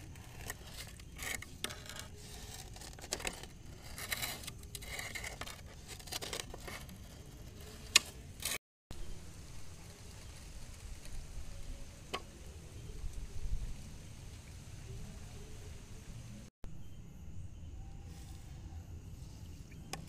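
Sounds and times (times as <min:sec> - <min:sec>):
scraping and rustling: 0:00.0 - 0:08.6.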